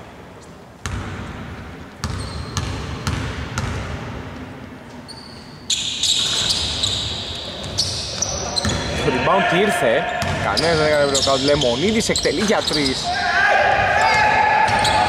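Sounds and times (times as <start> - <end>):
shoe soles squeaking on court: 2.0 - 3.2, 4.9 - 9.1, 10.0 - 13.2, 14.0 - 15.0.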